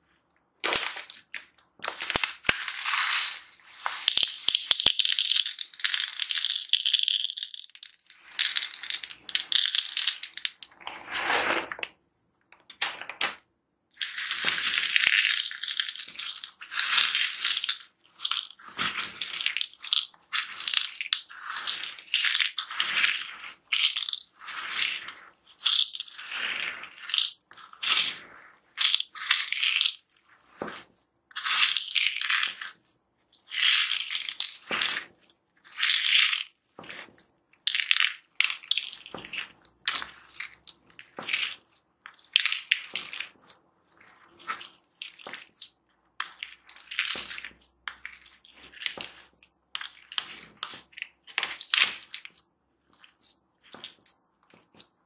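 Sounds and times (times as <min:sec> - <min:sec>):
beads pouring into slime: 0:00.6 - 0:11.8, 0:14.0 - 0:32.8, 0:33.4 - 0:37.1.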